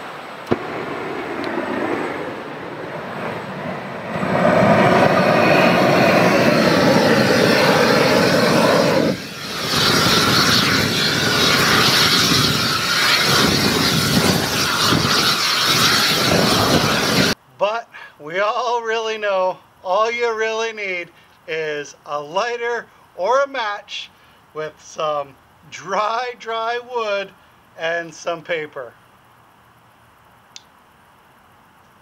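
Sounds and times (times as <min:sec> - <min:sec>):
gas torch flame hissing: 0:04.0 - 0:17.4.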